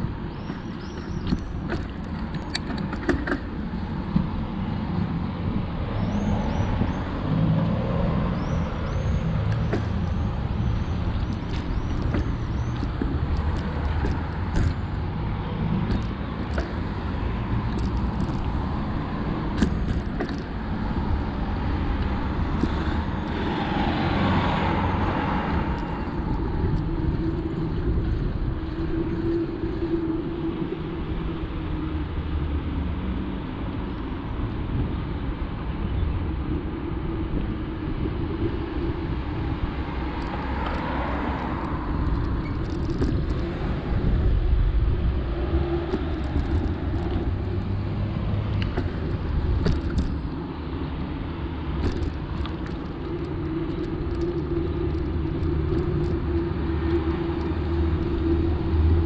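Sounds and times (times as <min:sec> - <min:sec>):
wind rumbling on microphone: 0:00.0 - 0:59.0
bicycle clicks and rattles: 0:00.4 - 0:05.1, 0:08.4 - 0:30.2, 0:37.4 - 0:59.0
vehicle passing: 0:06.2 - 0:29.2
bicycle tyre noise: 0:08.4 - 0:33.2, 0:36.5 - 0:59.0.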